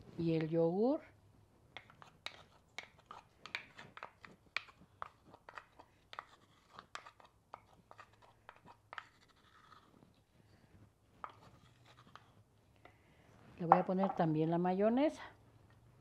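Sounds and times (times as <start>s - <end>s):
spoon scraping clay bowl: 1.7s - 10.3s, 11.2s - 12.5s.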